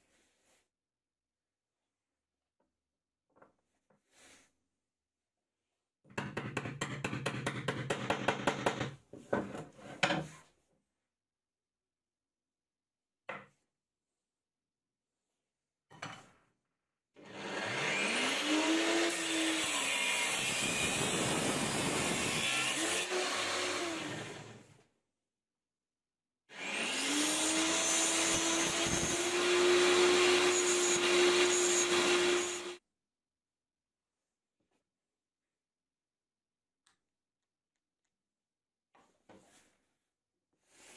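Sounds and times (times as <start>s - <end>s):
angle grinder whining: 26.5s - 32.8s.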